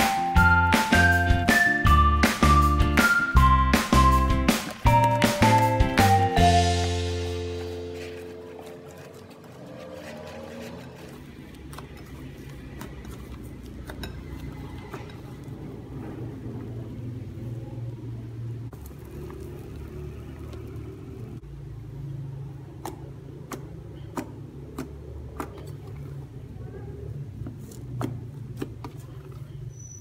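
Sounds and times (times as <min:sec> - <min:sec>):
slime squishing: 0:04.5 - 0:15.9, 0:22.8 - 0:26.5.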